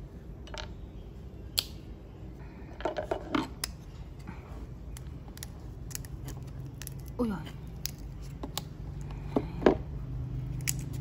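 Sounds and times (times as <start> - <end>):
tuber cracking as peeled: 4.9 - 8.8, 10.5 - 11.0.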